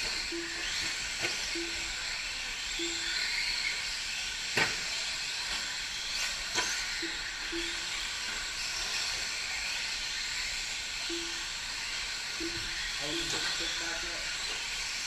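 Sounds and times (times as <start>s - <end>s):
model truck motors and tyres hissing: 0.0s - 15.0s
short low beeps: 0.3s - 0.8s, 1.5s - 2.0s, 2.8s - 3.2s, 7.0s - 7.9s, 11.1s - 11.5s, 12.4s - 13.6s.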